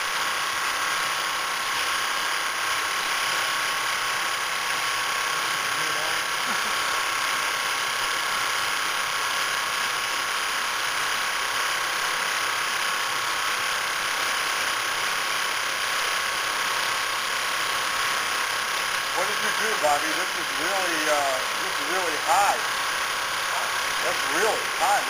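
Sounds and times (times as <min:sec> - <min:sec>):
quilting machine whirring: 0:00.0 - 0:25.0.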